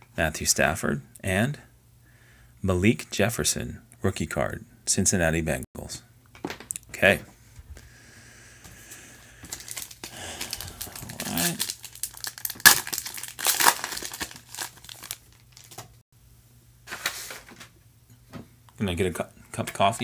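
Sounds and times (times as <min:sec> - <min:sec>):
foil wrapper tearing and crinkling: 0:09.4 - 0:16.0.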